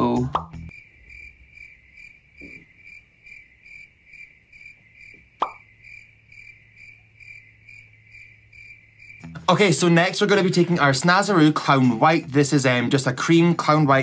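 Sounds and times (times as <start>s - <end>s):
cricket chirps: 0.0s - 12.7s
sharp pop: 5.4s - 5.6s.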